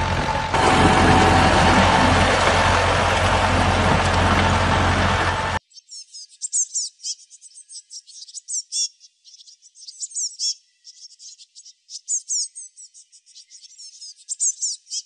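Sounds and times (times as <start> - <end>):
small birds chirping: 5.7 - 15.0.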